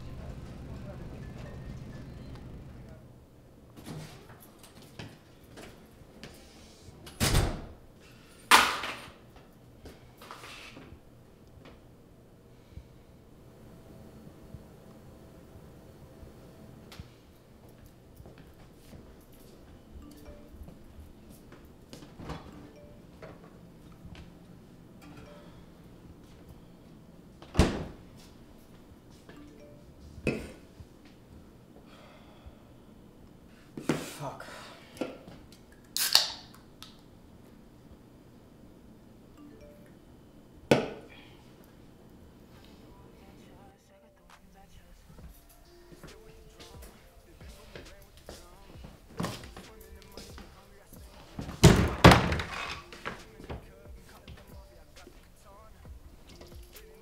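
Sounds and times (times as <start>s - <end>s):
door opening and shutting: 0.0s - 3.1s, 51.4s - 53.0s
light footsteps: 16.9s - 22.6s, 45.1s - 51.8s, 52.8s - 57.0s.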